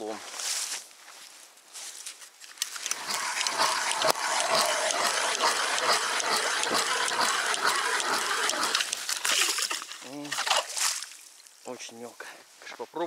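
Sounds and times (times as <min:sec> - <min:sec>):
crackling ice chips and water: 0:02.6 - 0:11.5
ice auger grinding ice: 0:02.7 - 0:10.5.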